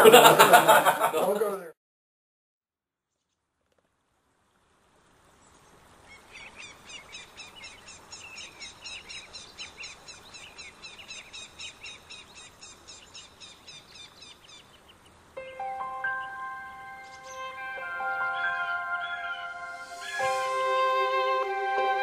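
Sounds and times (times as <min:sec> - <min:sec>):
steady background hiss: 0:03.8 - 0:22.0
birds chirping: 0:05.4 - 0:21.4.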